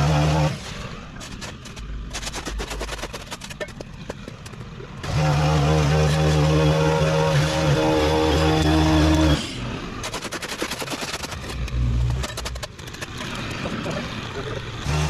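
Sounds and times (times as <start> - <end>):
string trimmer engine: 5.0 - 9.8, 13.2 - 15.0.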